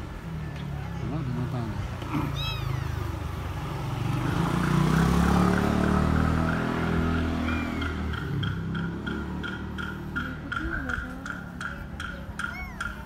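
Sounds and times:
vehicle engine running: 0.0 - 13.0
kitten mewing: 2.0 - 3.6, 7.4 - 8.2, 12.3 - 13.0.

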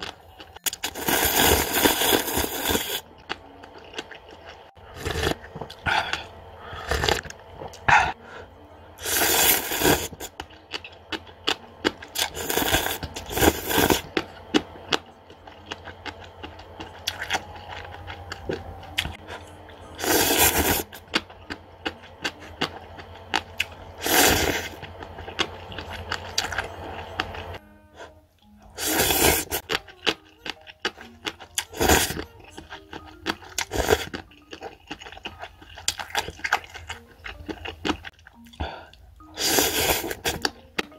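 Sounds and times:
person slurping noodles: 0.8 - 3.0, 4.8 - 8.2, 9.0 - 10.3, 12.2 - 14.1, 20.0 - 21.0, 24.0 - 24.8, 28.8 - 29.6, 39.4 - 40.4
chewing: 9.1 - 27.6, 28.4 - 40.9.

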